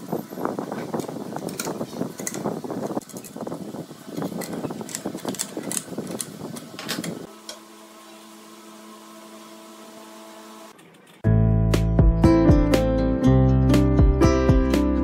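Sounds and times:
low machine hum: 6.0s - 11.2s.

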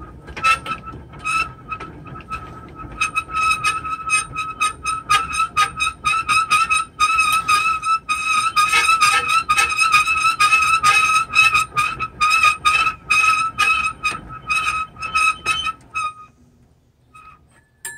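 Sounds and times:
crank mechanism squeaking: 0.3s - 16.4s, 17.0s - 17.9s.

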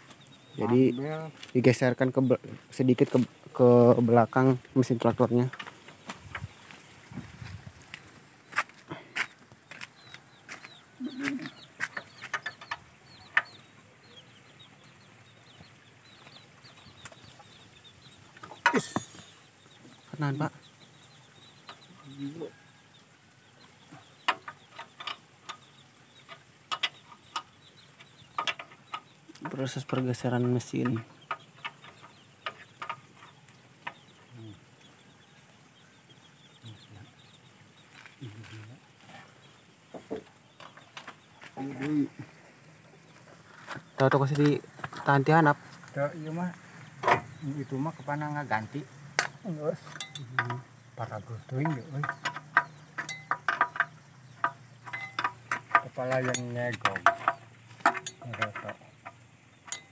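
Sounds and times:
small birds chirping: 0.0s - 59.9s
chicks peeping: 0.1s - 59.9s
low cluck: 8.5s - 13.6s
sharp clicks and knocks: 11.4s - 13.6s, 24.2s - 34.0s, 47.0s - 47.4s, 49.2s - 59.9s.

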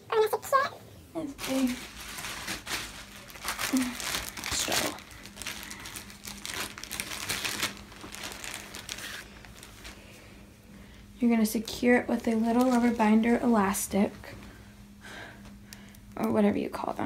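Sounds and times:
hair and clothing rustling: 1.2s - 10.2s.

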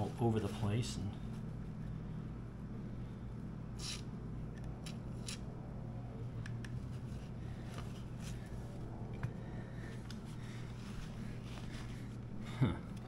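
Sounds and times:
low hum: 0.0s - 13.0s
paper towel rustling: 10.3s - 12.2s.

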